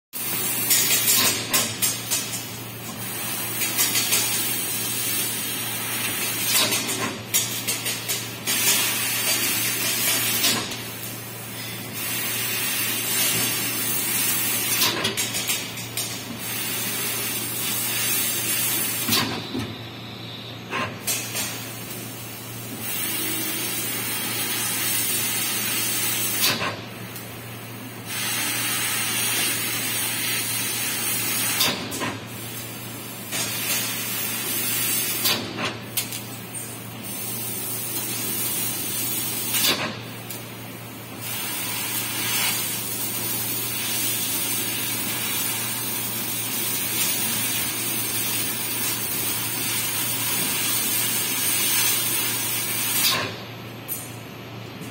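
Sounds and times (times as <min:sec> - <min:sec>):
hiss of laser cutter gas: 0:08.5 - 0:14.8, 0:21.1 - 0:26.6, 0:28.0 - 0:31.7, 0:37.0 - 0:39.7, 0:41.2 - 0:53.2.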